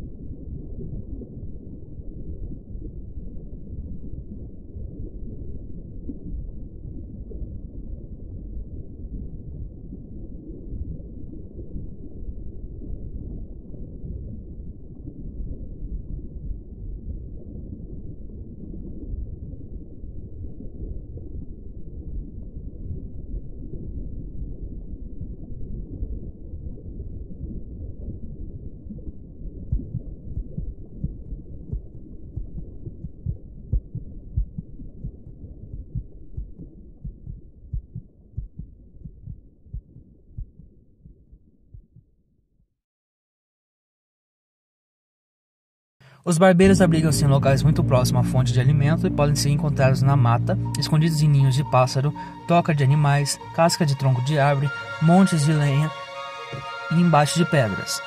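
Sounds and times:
low muffled rumble: 0:24.0 - 0:40.7, 0:46.6 - 0:54.6.

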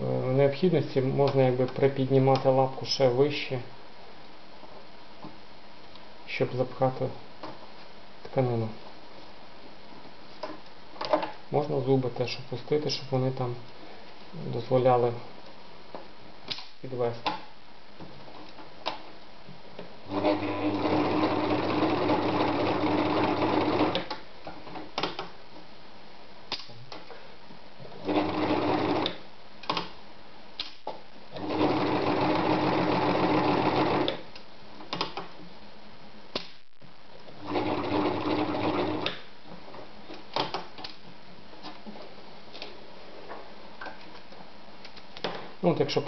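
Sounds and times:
sewing machine stitching: 0:20.1 - 0:24.1, 0:28.0 - 0:29.2, 0:31.3 - 0:34.2, 0:37.4 - 0:39.2.

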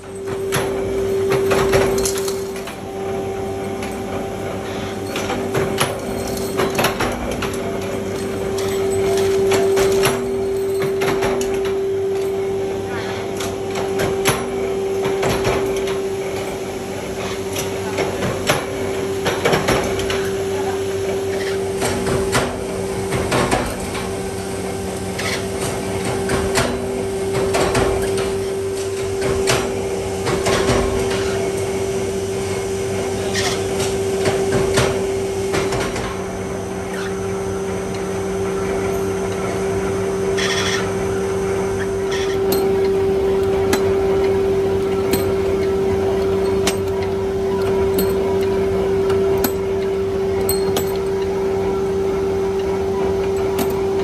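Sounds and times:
workshop machinery humming: 0:00.0 - 0:54.0
metal clanks and knocks: 0:42.1 - 0:51.4, 0:53.3 - 0:54.0.

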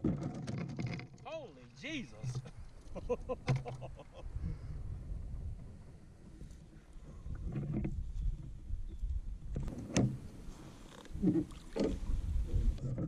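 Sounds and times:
gear bumping against kayak hull: 0:00.0 - 0:01.4, 0:02.2 - 0:04.1, 0:09.4 - 0:13.0.

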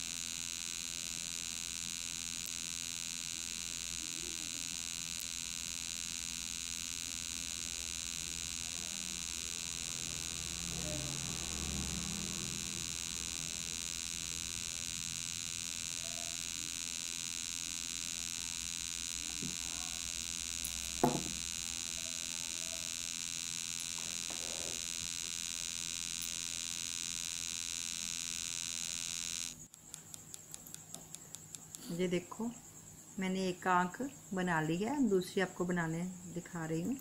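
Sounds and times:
electrical buzz with hissing whine: 0:00.0 - 0:37.0
soft knock: 0:21.0 - 0:21.3.

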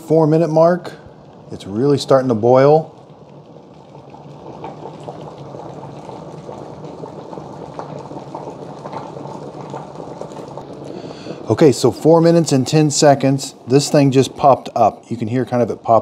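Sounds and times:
kettle water boiling: 0:00.0 - 0:16.0.

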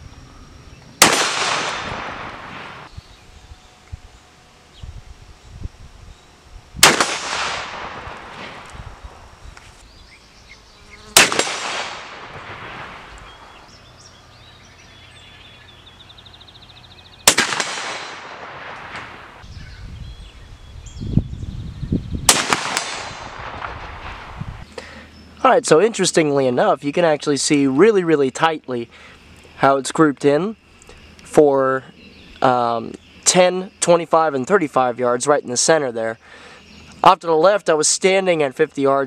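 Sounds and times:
shotgun shots echoing: 0:01.0 - 0:02.9, 0:06.8 - 0:08.7, 0:11.2 - 0:13.6, 0:17.2 - 0:19.4, 0:22.3 - 0:24.3.

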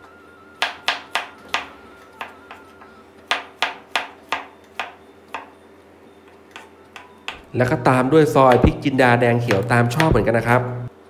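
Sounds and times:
knife blade tapping cutting board: 0:09.5 - 0:10.2.

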